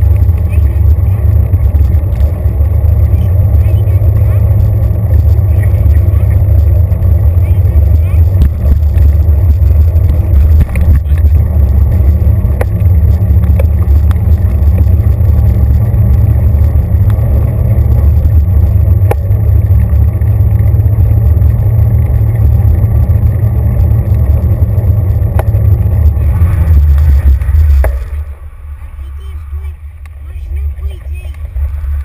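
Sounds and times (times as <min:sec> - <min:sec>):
bicycle rolling on pavement: 0:00.0 - 0:32.0.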